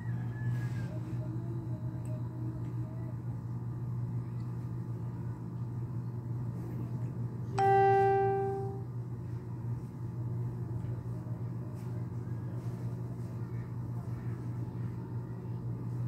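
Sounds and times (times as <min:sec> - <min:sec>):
steady low hum: 0:00.0 - 0:16.0
chime-like tone: 0:07.6 - 0:08.8.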